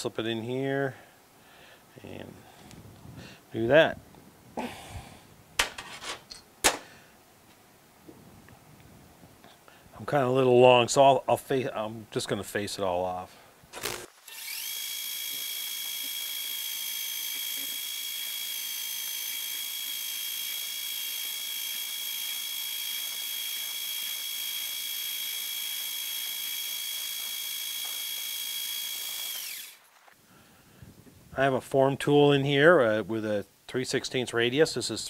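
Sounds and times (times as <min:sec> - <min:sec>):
metal lathe high-pitched whine: 0:14.3 - 0:29.8.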